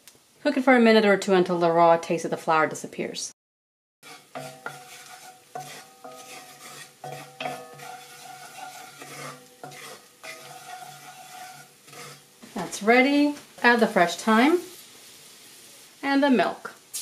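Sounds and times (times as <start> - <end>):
utensil scraping a frying pan: 4.0 - 16.0
faint sizzle: 4.0 - 17.0.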